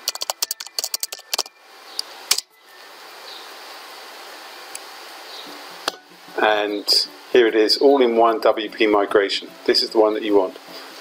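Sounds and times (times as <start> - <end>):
computer keyboard typing: 0.0 - 1.5
faint hiss: 1.6 - 11.0.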